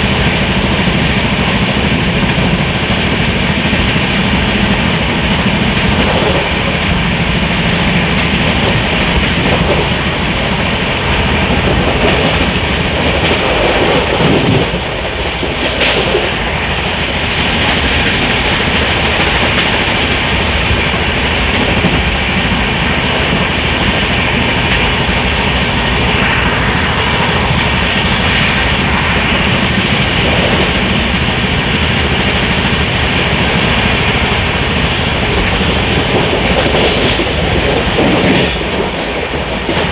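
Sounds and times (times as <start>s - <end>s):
train wheels rushing on rails: 0.0s - 39.9s.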